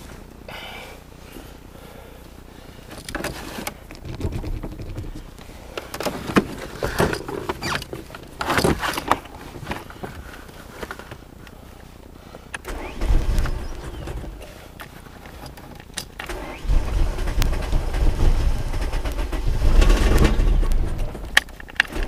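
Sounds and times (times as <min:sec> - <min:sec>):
knocks and clicks: 0:03.0 - 0:05.3
low rumble: 0:16.3 - 0:21.4.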